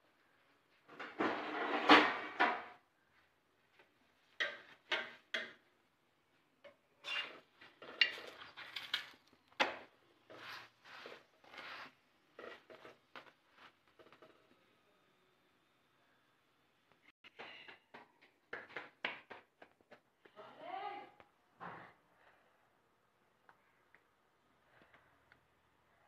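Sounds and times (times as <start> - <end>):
metal spatula scraping a pan: 7.0 - 9.1, 10.3 - 13.0.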